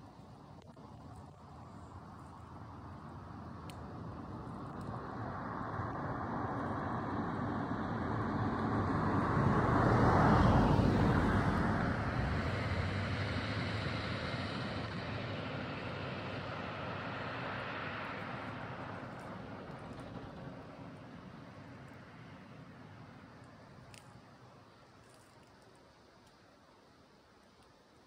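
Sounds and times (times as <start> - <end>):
vehicle passing by: 4.2 - 23.3.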